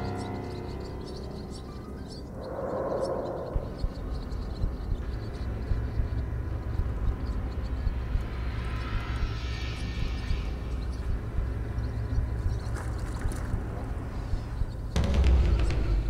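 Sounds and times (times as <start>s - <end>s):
wind buffeting microphone: 2.2s - 9.4s.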